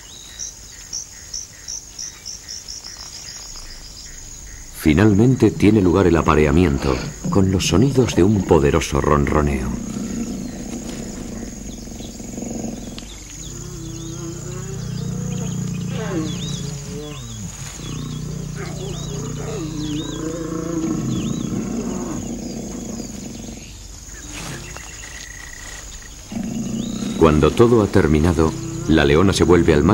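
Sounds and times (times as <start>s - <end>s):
lion purring rumble: 3.2s - 29.9s
lion snarl: 4.8s - 23.8s, 25.7s - 29.9s.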